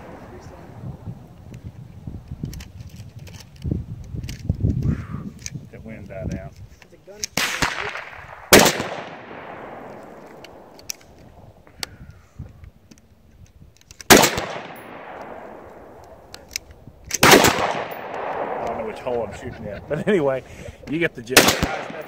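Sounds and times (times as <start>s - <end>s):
rifle shots echoing: 7.3s - 11.1s, 14.1s - 16.5s, 17.1s - 19.9s, 21.2s - 22.0s.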